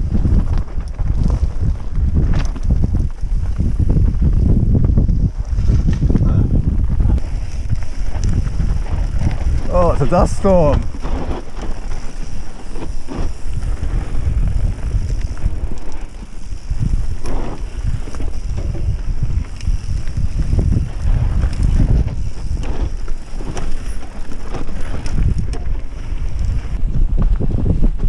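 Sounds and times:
tyres on dirt: 0.0s - 27.5s
wind on microphone: 0.0s - 28.0s
bike knocks and rattles: 10.7s - 28.0s.

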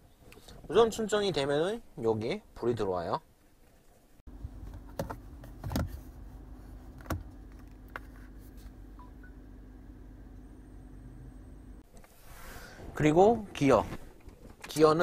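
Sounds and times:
low cabin hum: 4.3s - 15.0s.

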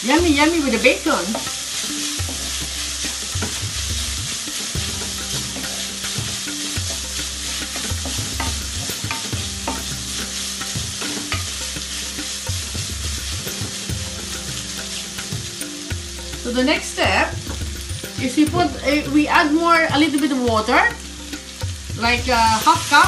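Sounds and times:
bacon sizzling in a pan: 0.0s - 23.0s
wooden spoon scraping a pan: 0.6s - 15.8s.

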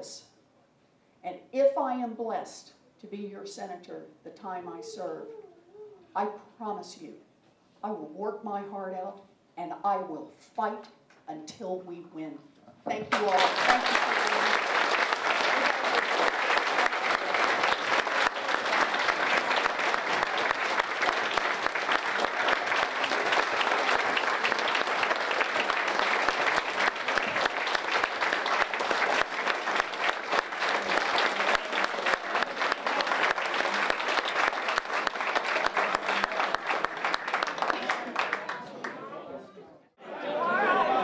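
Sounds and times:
audience applauding: 13.1s - 39.0s.

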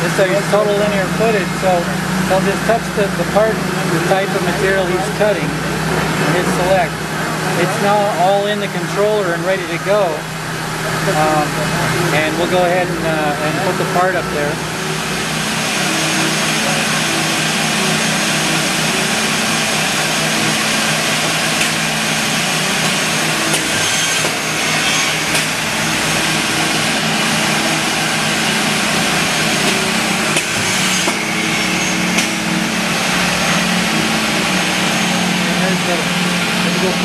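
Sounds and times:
chop saw cutting wood: 22.8s - 32.6s.

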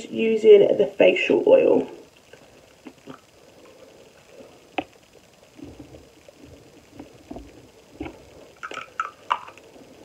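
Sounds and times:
soft bumps and rubbing: 5.6s - 8.3s.

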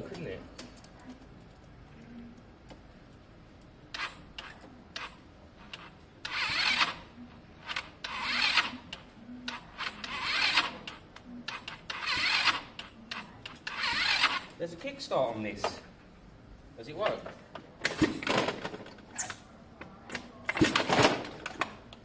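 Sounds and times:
electric starter cranking engine: 5.8s - 7.0s, 7.6s - 8.8s, 9.8s - 10.8s, 11.9s - 12.7s, 13.6s - 14.5s.

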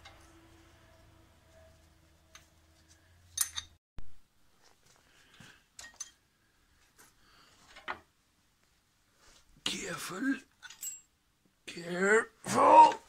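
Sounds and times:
metallic clicks of engine parts: 3.3s - 3.8s.

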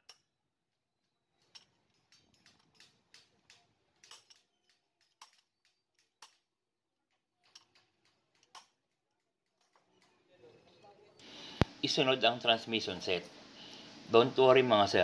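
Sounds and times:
metal tools clicking and tapping: 0.0s - 0.4s, 1.0s - 10.3s.

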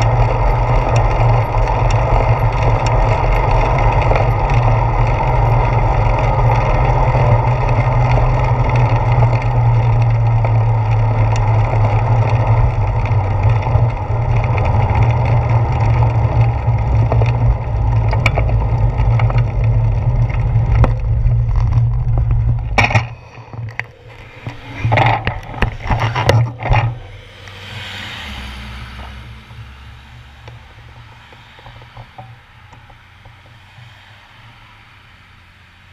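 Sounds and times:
wind and road rumble: 0.0s - 35.9s
faint whoosh: 23.2s - 31.6s.

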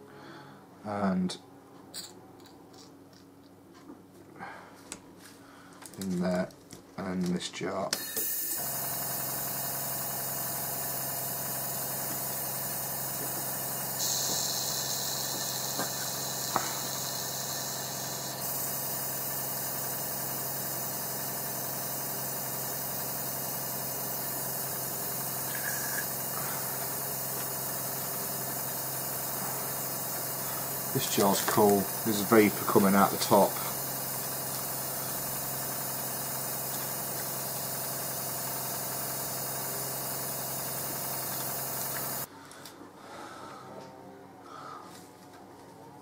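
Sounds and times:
compressor humming: 5.4s - 42.3s
airbrush spray hiss: 8.0s - 42.3s.

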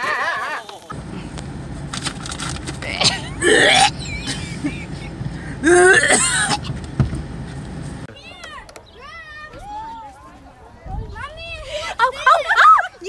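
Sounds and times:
steady low rumble: 0.9s - 8.1s
woman gagging and retching: 2.8s - 4.5s, 5.6s - 6.7s.

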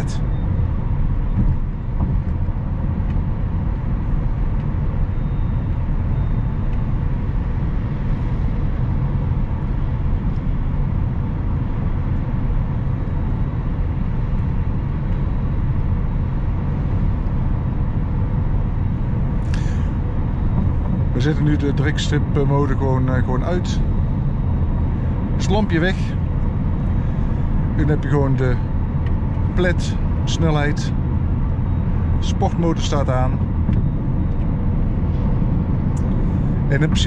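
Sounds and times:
tyre and wind noise in car: 0.0s - 22.4s.

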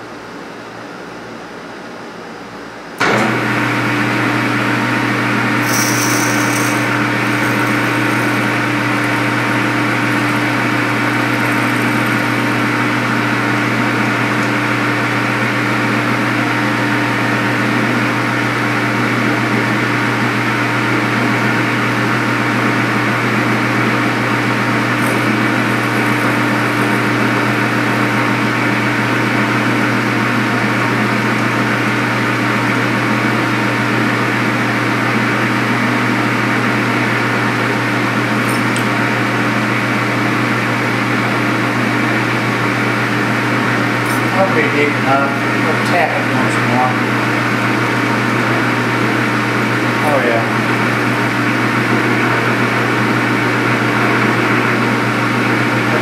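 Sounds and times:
lathe drilling metal: 5.4s - 16.0s, 22.7s - 30.6s.

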